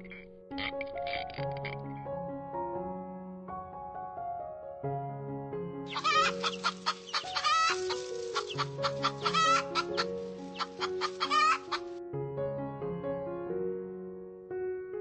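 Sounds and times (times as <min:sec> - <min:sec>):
background music: 0:00.0 - 0:03.8, 0:04.5 - 0:14.3
hens clucking: 0:05.9 - 0:12.0.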